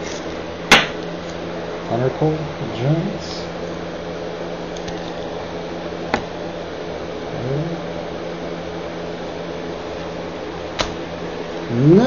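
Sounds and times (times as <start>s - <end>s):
mechanical hum: 0.0s - 12.0s
sharp click: 10.8s - 11.0s.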